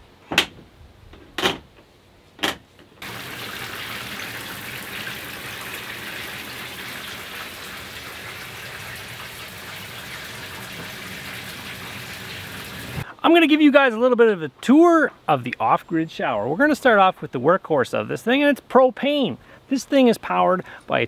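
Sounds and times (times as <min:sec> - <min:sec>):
shower water spraying: 0:03.0 - 0:13.0.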